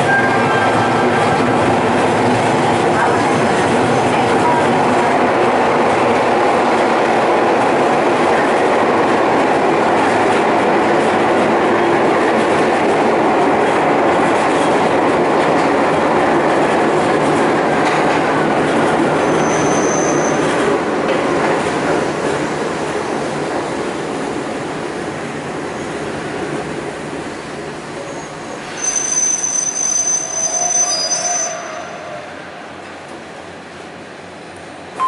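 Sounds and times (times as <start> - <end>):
train wheels on rails: 0.0 - 35.0
brief high squeal: 19.2 - 20.4, 28.1 - 32.2.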